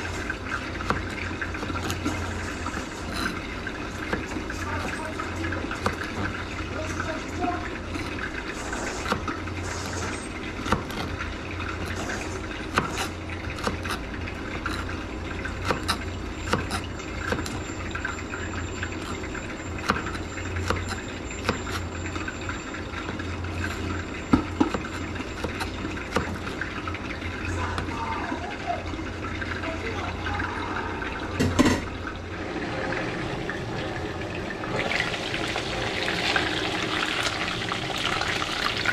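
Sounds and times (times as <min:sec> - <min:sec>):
knife chopping on plastic board: 0:15.6 - 0:17.6, 0:24.4 - 0:26.4.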